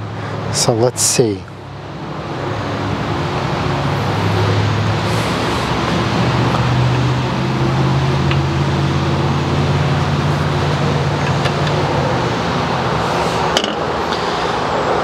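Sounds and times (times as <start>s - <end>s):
engine running: 1.5s - 15.0s
loud even rush: 3.3s - 15.0s.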